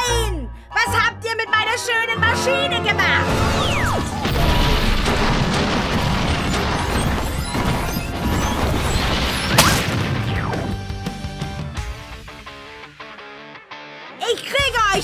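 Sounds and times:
background music: 0.0 - 15.0
cartoon crashing rumble: 3.3 - 10.7.

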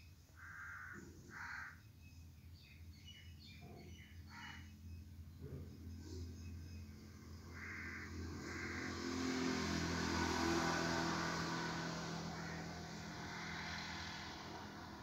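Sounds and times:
vehicle passing by: 5.4 - 15.0.

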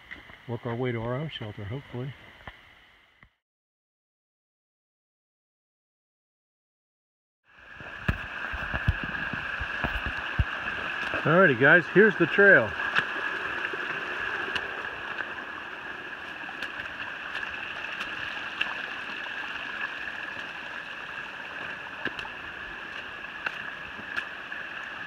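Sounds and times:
water rushing over rocks: 7.6 - 25.0.

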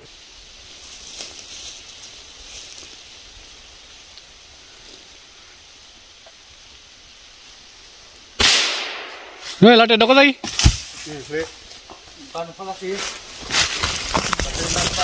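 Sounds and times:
leaves and brush rustling: 0.0 - 15.0
quiet forest background: 0.0 - 15.0.

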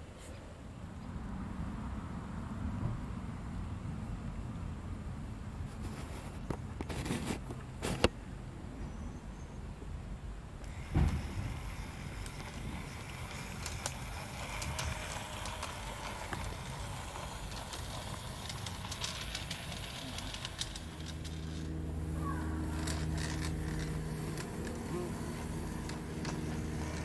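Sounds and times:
steady low hum: 0.0 - 27.0
small electric motor whirring: 10.6 - 27.0
wheels clicking over rail: 10.6 - 27.0.

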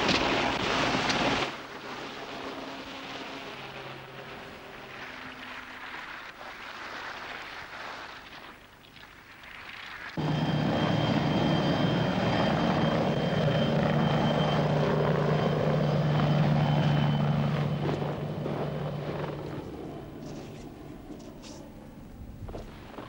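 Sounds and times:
thin high whine: 10.2 - 22.9
engine running: 10.2 - 23.0.

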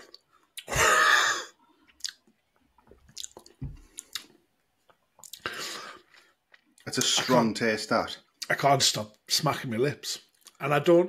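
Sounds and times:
lip smacks and clicks: 1.9 - 5.5.

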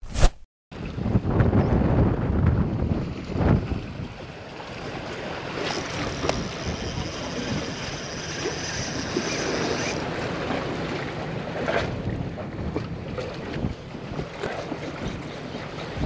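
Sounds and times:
wind buffeting microphone: 0.8 - 5.4, 11.6 - 16.0
choppy sea waves: 0.8 - 16.0.

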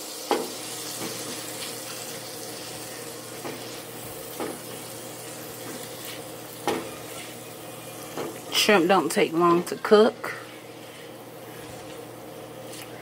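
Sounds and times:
shrimp sizzling in a frying pan: 0.0 - 12.1
spatula scraping a pan: 5.6 - 7.5.

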